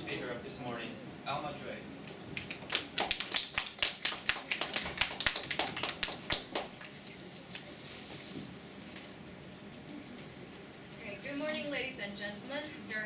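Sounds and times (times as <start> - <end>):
audience applauding: 2.4 - 6.7.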